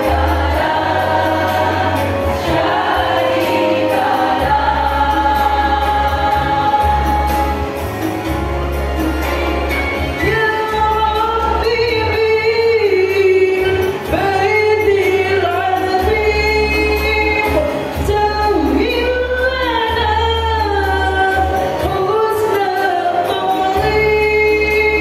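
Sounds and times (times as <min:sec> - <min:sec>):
women's choir singing: 0:00.0 - 0:07.9.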